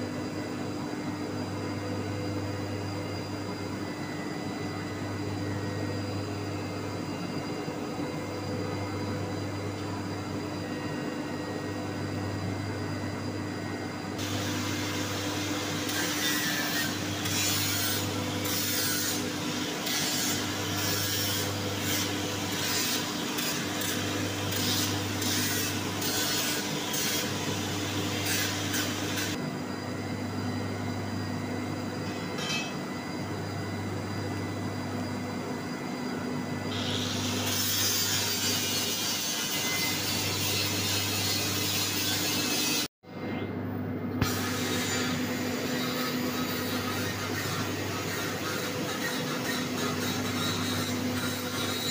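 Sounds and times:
pulsing electrical hum: 0.0 - 51.9.

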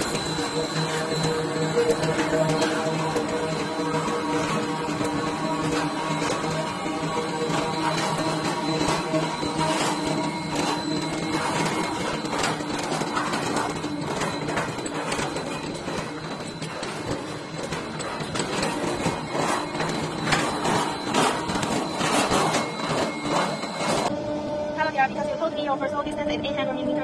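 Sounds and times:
roll forming machine whirring: 0.0 - 24.4.

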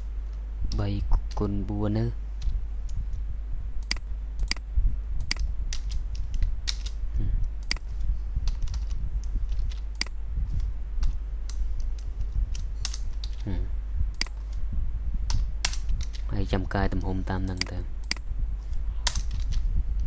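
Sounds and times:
steady low hum: 0.0 - 20.0
keyboard typing clicks: 5.2 - 6.9.

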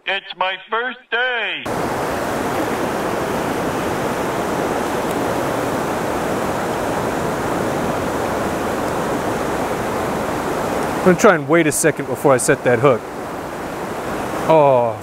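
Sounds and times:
river rapids rushing: 1.7 - 15.0.

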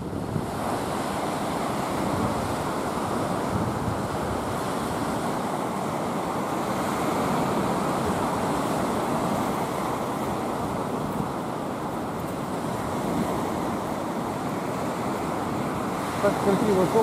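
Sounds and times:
small waves breaking on sand: 0.0 - 17.0.

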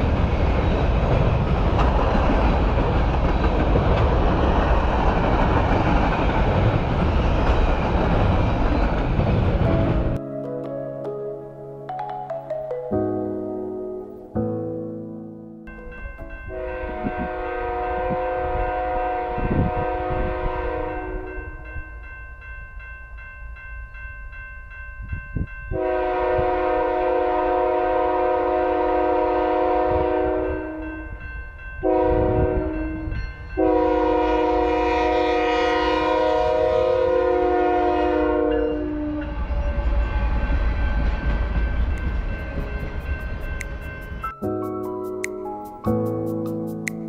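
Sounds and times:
train rumbling past: 0.0 - 10.2, 15.9 - 21.8, 25.0 - 47.0
crossing bell ringing: 15.7 - 18.2, 20.3 - 26.8, 30.3 - 34.3, 39.8 - 45.9
locomotive air horn blasts: 16.5 - 21.4, 25.8 - 30.9, 31.8 - 39.4.

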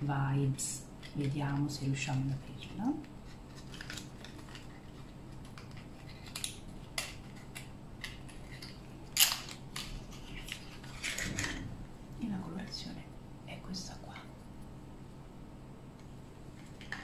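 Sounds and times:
plastic packaging clicks and crinkles: 2.7 - 11.6
sharp plastic crackle: 3.1 - 11.6.

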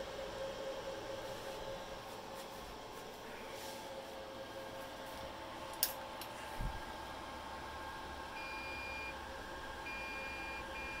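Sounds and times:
computer hum: 0.0 - 11.0.

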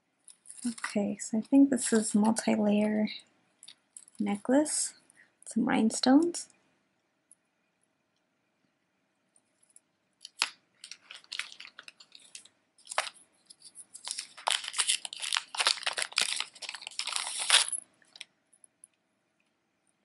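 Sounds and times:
metal jewelry chains clinking: 16.3 - 17.9.

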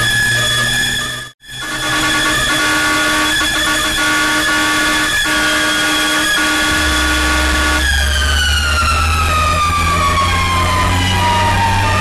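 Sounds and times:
fire truck siren: 0.0 - 12.0.

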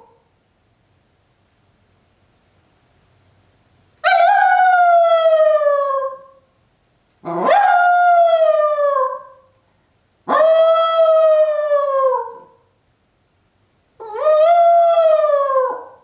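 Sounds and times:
dog howling: 4.0 - 6.4, 7.2 - 9.4, 10.3 - 12.6, 14.0 - 16.0.

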